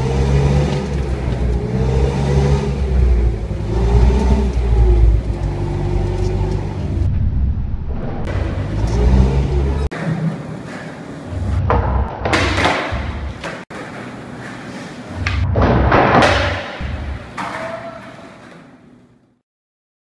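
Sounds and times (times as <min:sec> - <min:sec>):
skateboard wheels rolling on concrete: 0:00.0 - 0:07.0, 0:08.3 - 0:19.2
skateboard hitting floor: 0:11.6 - 0:18.8.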